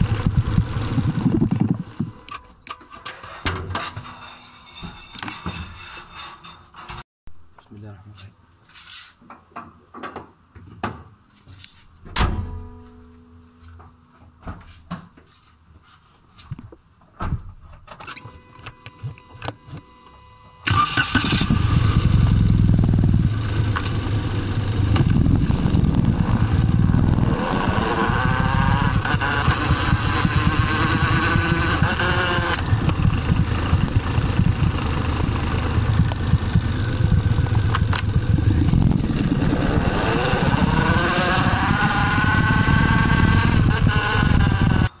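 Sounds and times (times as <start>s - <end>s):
car gearbox whine: 0.0s - 2.9s, 23.7s - 39.8s.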